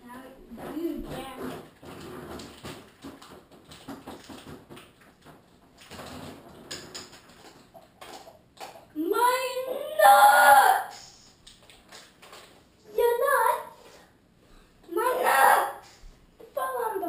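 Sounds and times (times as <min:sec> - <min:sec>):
faint clicks and rustling: 0:00.2 - 0:09.0, 0:10.9 - 0:12.9.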